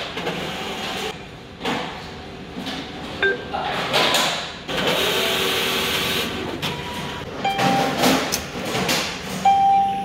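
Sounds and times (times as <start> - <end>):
short electronic beep: 9.4 - 10.0.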